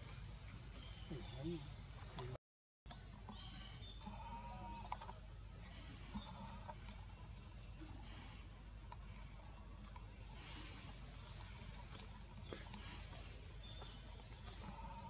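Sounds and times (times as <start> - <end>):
bird chirping: 0.0 - 9.2
faint forest background: 0.0 - 15.0.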